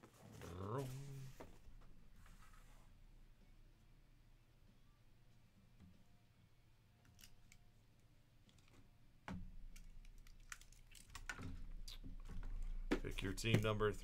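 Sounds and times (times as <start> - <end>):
small clicks and handling noises: 7.0 - 7.7, 8.4 - 8.9, 9.7 - 13.7.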